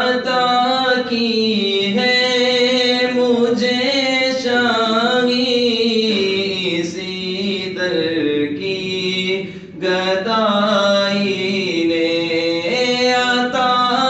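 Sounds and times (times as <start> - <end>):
man singing devotional song: 0.0 - 14.0.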